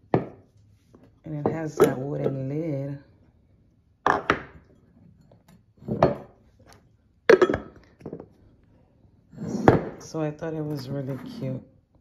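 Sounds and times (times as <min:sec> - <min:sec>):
ceramic canister and lid knocking: 0:04.0 - 0:04.6, 0:07.3 - 0:08.3.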